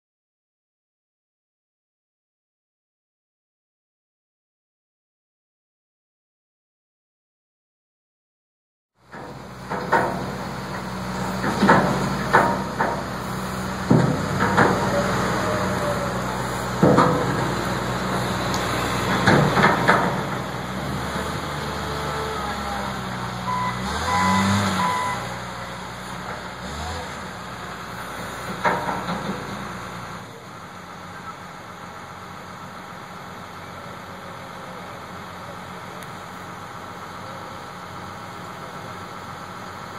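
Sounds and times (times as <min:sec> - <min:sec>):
diesel engine running: 0:09.0 - 0:39.9
metallic clanks and bangs: 0:09.1 - 0:15.1, 0:16.6 - 0:18.3, 0:19.0 - 0:20.5
reversing beeps: 0:23.5 - 0:25.4.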